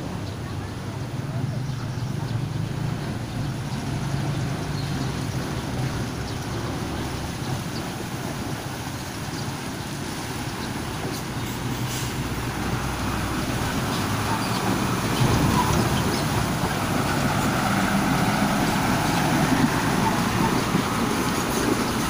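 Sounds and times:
diesel engine running: 0.0 - 22.0
water washing around tyres: 0.0 - 22.0.

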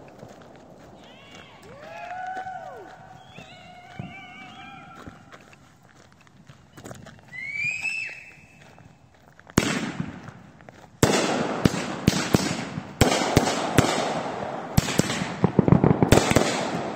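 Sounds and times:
firework rising whistle: 7.3 - 8.6
firework bangs: 9.6 - 10.4, 11.0 - 16.9.

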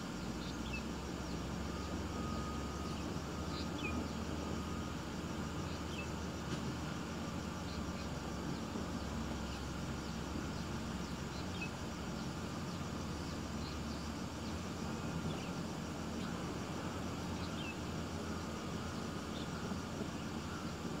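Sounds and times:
low outdoor rumble: 0.0 - 21.0
faint bird chirps: 0.2 - 6.2.

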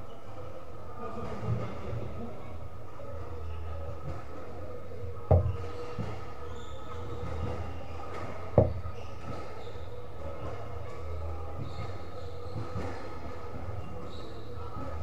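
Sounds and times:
squash ball being struck: 5.3 - 5.6.

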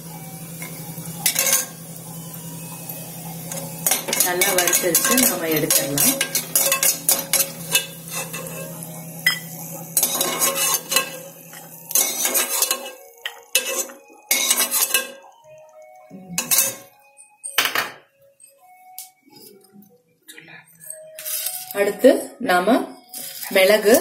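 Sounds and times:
steel spoon scraping a pot: 3.8 - 9.4, 10.0 - 11.2, 11.9 - 15.2, 16.4 - 17.0.

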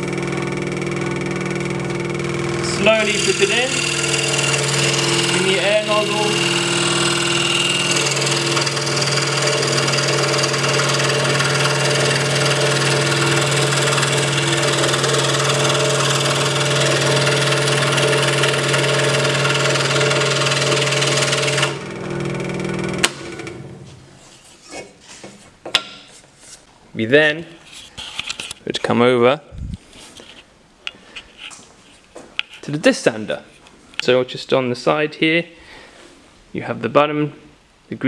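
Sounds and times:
scroll saw cutting wood: 0.0 - 24.0.

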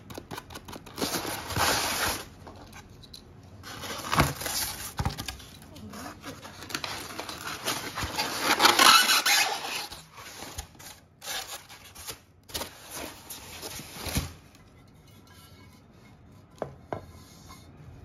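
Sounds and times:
foam blocks rubbing and scraping: 0.9 - 2.5, 5.8 - 14.4.

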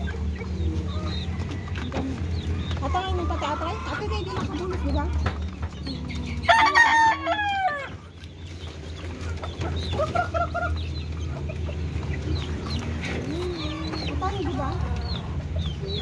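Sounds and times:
rooster crowing: 6.5 - 8.0.

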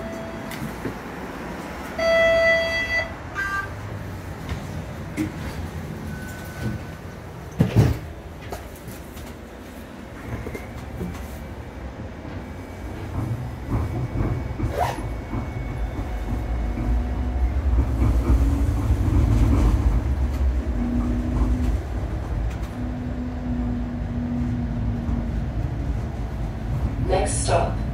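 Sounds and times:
streetcar rumbling on rails: 0.0 - 27.9.

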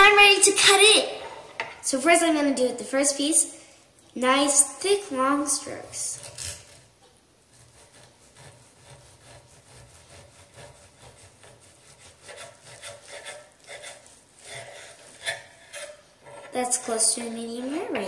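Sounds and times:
knife sawing through steak: 7.5 - 16.5
blade rubbing on wooden board: 7.5 - 17.8.

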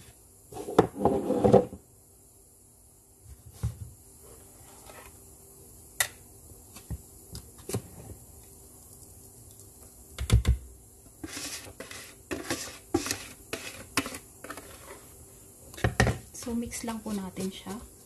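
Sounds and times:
whisk scraping plastic bowl: 11.2 - 15.0.

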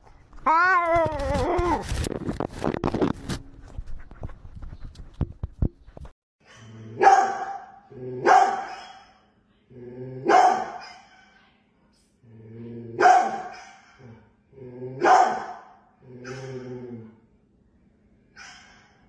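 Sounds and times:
large dog barking: 7.0 - 9.0, 10.2 - 11.0, 13.0 - 14.0, 15.0 - 16.7.

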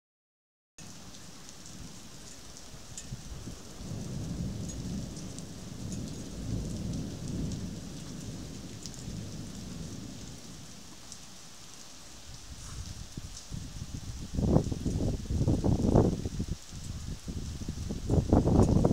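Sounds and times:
raindrops ticking: 0.8 - 13.6, 18.0 - 18.9
steady rain hiss: 0.8 - 18.9
thunder rumbling: 3.0 - 10.8.

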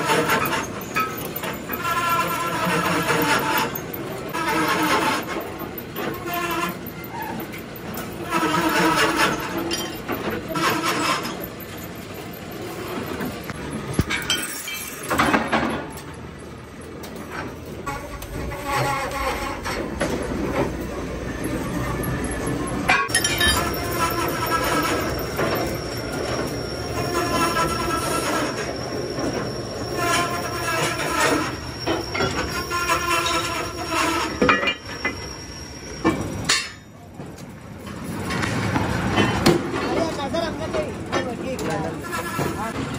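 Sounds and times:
lathe tool squealing on steel: 0.0 - 15.1, 17.8 - 20.7, 21.4 - 37.1, 41.7 - 42.8
metal clanking and scraping: 0.0 - 16.2, 17.0 - 20.9, 22.8 - 42.9
loud metal clank: 36.0 - 36.9.

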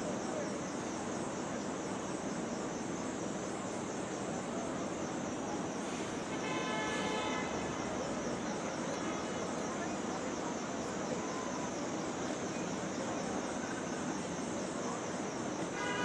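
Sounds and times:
street traffic: 5.8 - 11.6
vehicle horn: 6.3 - 7.8, 15.7 - 16.0.

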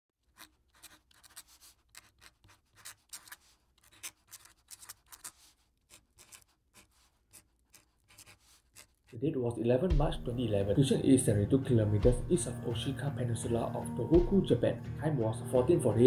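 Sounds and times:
marker pen scratching: 0.2 - 9.2.

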